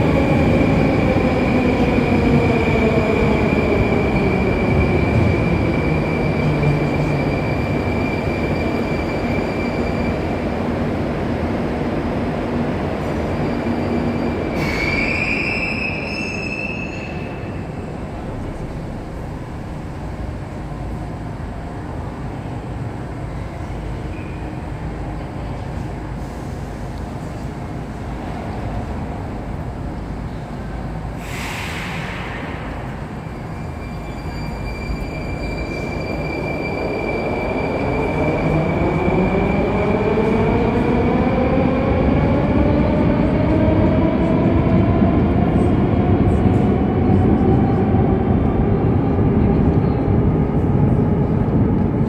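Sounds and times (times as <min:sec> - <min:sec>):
air hiss: 0:31.1 - 0:32.8.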